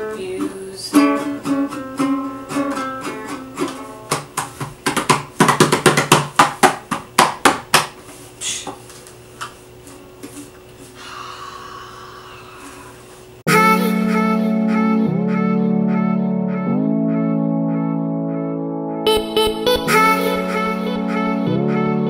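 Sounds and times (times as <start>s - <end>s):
ukulele plucking and strumming: 0.0s - 7.0s, 19.1s - 21.7s.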